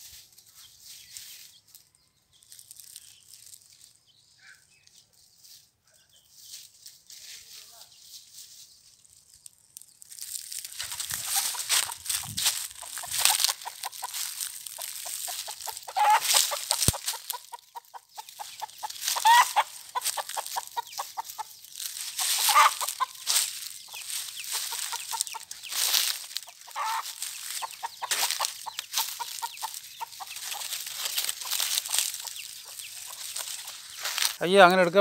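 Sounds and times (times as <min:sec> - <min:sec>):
rustling of dry leaves: 0:00.0 - 0:35.0
hen clucking: 0:10.6 - 0:35.0.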